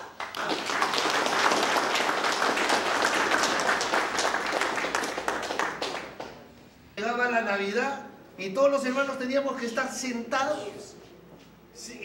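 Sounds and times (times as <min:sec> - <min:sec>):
crowd applauding: 0:00.0 - 0:06.4.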